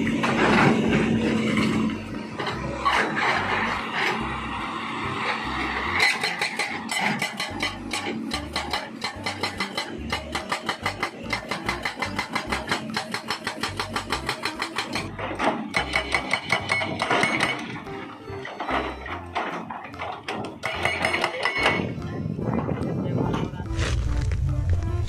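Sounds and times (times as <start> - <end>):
diesel engine running: 0.0 - 21.1, 23.1 - 25.0
hydraulic breaker hammering rock: 5.7 - 22.0.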